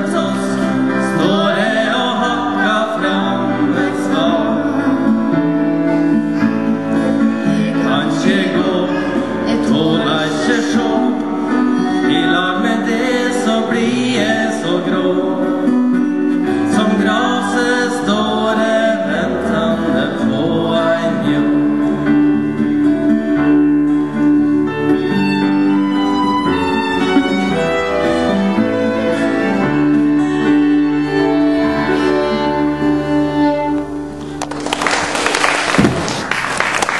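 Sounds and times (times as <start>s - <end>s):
strummed acoustic guitar: 0.0s - 34.4s
violin melody: 0.0s - 34.4s
keyboard: 0.0s - 35.1s
audience applauding: 34.2s - 36.9s.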